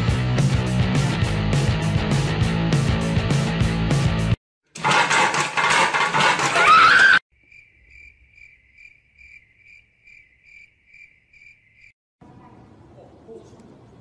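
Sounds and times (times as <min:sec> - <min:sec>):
cricket chirping sound effect: 0:07.3 - 0:12.0.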